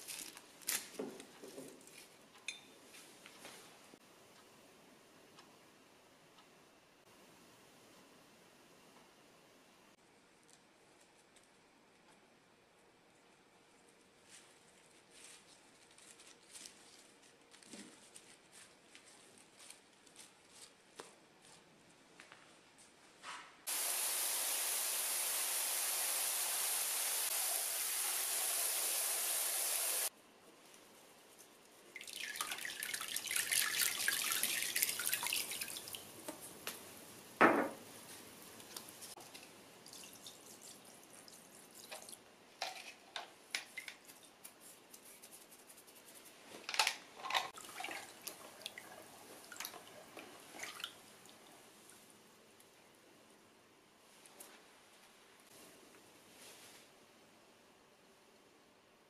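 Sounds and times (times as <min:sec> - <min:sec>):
hand stirring water: 0:31.4 - 0:36.5, 0:47.3 - 0:51.6
water pouring and splashing: 0:31.9 - 0:36.2, 0:39.2 - 0:43.0, 0:47.4 - 0:51.5
water running into tub: 0:32.0 - 0:36.2, 0:47.6 - 0:51.5.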